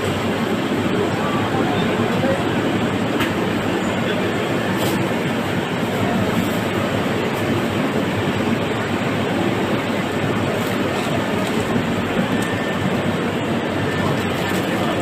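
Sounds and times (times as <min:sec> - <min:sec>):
busy market background noise: 0:00.0 - 0:15.0.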